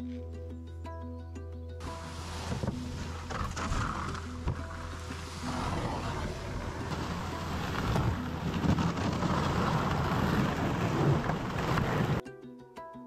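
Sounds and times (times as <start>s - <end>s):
canoe bumps: 1.8s - 12.2s
canoe hull scraping over snow: 1.8s - 12.2s.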